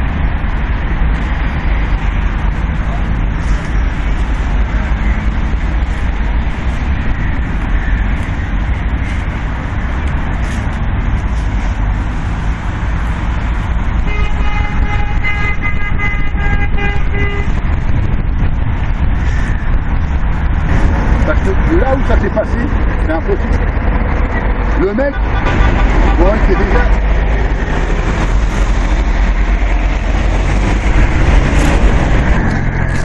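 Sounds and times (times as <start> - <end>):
road traffic rumble: 0.0 - 33.0
car horn: 14.0 - 17.7, 25.0 - 27.0.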